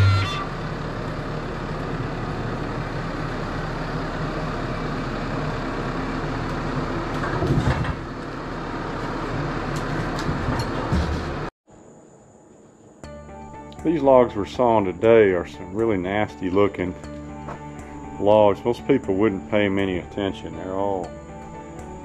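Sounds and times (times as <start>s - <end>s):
tractor diesel engine running: 0.0s - 11.5s, 13.8s - 22.0s
heavy clunk: 7.1s - 8.1s, 9.8s - 11.5s.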